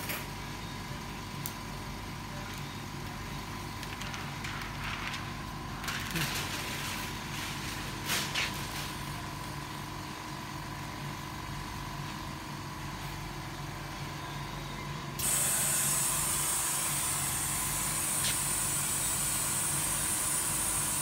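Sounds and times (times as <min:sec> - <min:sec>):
machine humming: 0:09.1 - 0:21.0
loud steady hiss: 0:15.2 - 0:21.0.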